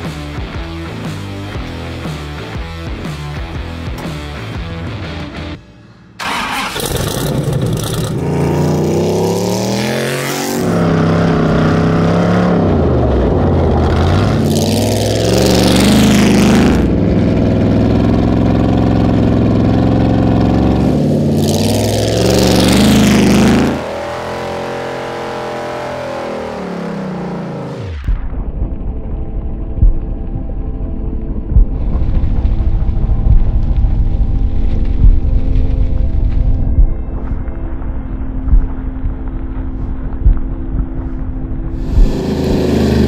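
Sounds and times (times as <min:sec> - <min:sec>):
race car engine revving: 0:06.2 - 0:28.1, 0:41.8 - 0:43.0.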